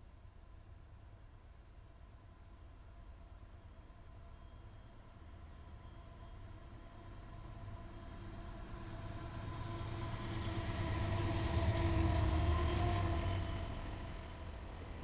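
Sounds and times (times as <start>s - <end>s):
freight train wheels rumbling on rails: 6.5s - 15.0s.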